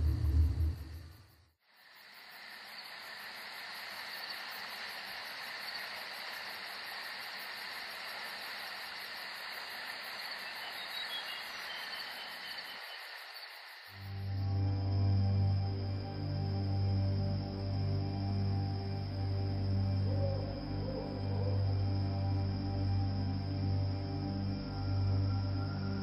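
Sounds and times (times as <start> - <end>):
night insects chirring: 0.0 - 26.0.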